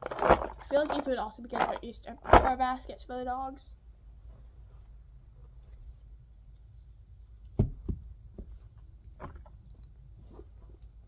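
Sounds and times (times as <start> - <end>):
hands rummaging in fabric stocking: 0.0 - 2.6
soft knocks: 7.5 - 8.6.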